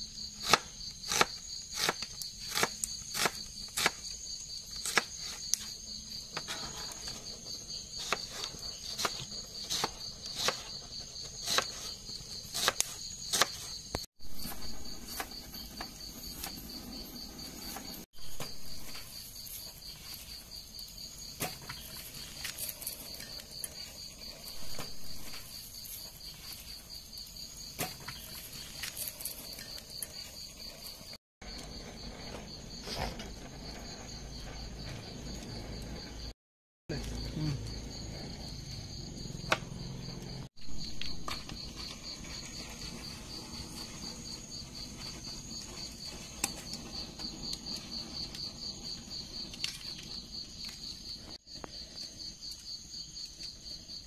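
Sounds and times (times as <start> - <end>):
crickets chirping: 0.0 - 54.0
knife chopping on cutting board: 12.5 - 13.7.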